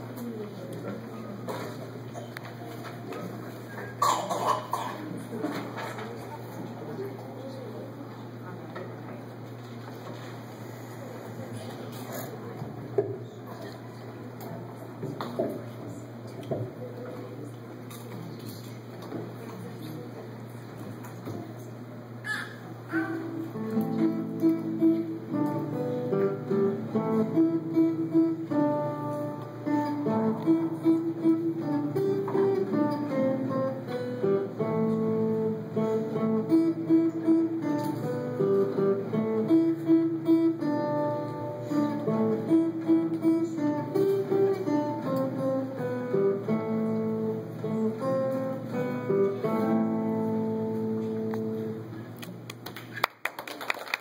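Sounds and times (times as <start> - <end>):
acoustic guitar music: 22.9 - 52.2.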